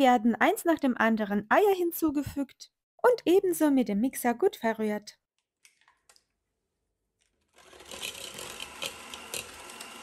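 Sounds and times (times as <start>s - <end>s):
electric hand mixer running: 7.5s - 10.0s.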